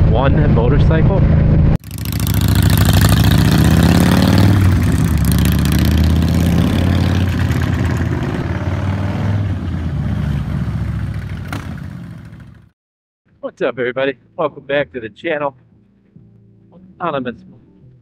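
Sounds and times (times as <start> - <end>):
wind and road noise: 0.0 - 12.7
motorcycle engine running: 1.8 - 12.7.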